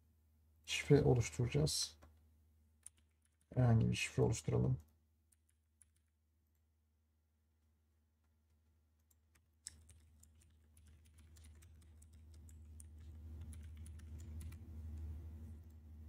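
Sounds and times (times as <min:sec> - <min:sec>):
faint low hum: 0:00.0 - 0:16.0
computer keyboard keys clicking: 0:02.8 - 0:03.5, 0:05.3 - 0:06.2, 0:09.0 - 0:14.6.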